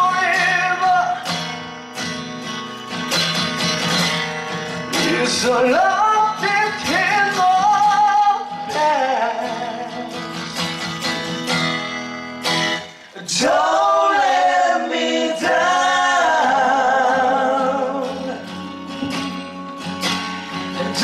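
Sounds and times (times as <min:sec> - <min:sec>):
man singing: 0:00.0 - 0:01.3, 0:04.9 - 0:10.7, 0:13.1 - 0:18.9, 0:20.6 - 0:21.0
acoustic guitar strumming: 0:00.0 - 0:21.0.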